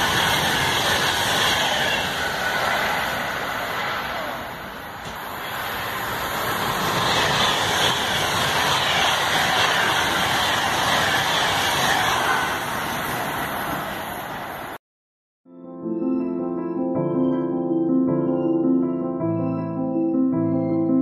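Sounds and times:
express train passing: 0:00.0 - 0:14.8.

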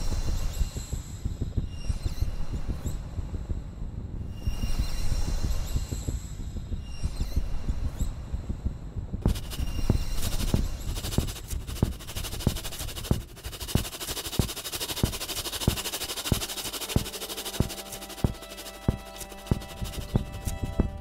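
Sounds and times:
percussion beat of sharp thuds: 0:08.4 - 0:21.0
hissing rustling noise: 0:09.2 - 0:21.0.

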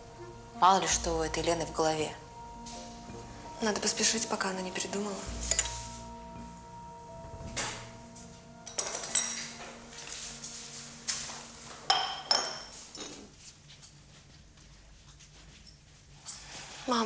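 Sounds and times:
quiet background music: 0:00.0 - 0:17.0
china dishes clinking: 0:05.4 - 0:06.0, 0:08.6 - 0:10.2, 0:11.9 - 0:13.3.

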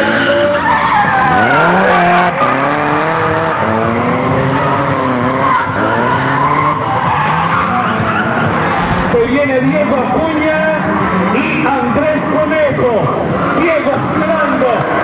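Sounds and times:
car engine revving: 0:00.0 - 0:11.3.

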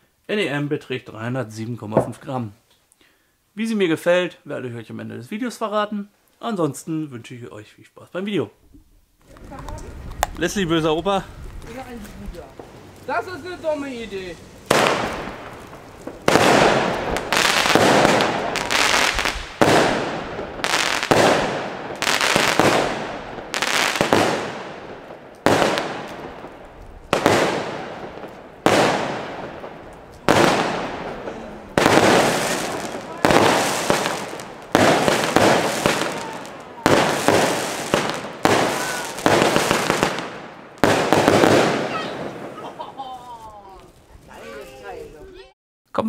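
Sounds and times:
fireworks reports and crackle: 0:09.2 - 0:46.0.

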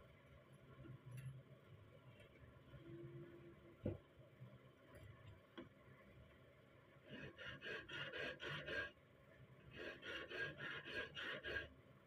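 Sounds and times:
hand file rasping on steel: 0:07.1 - 0:09.0, 0:09.7 - 0:11.7.

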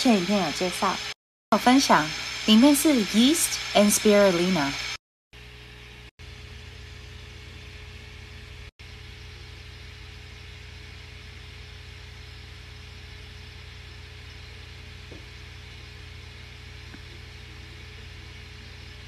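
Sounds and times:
even hiss: 0:00.0 - 0:05.0
steady low hum: 0:00.0 - 0:19.0.

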